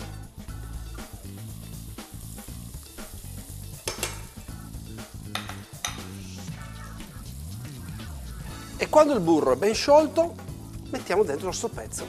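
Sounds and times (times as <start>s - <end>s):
butter sizzling in a frying pan: 0.0s - 11.9s
soft background music: 0.0s - 12.0s
tongs clicking against pan: 3.8s - 4.4s, 5.3s - 6.1s.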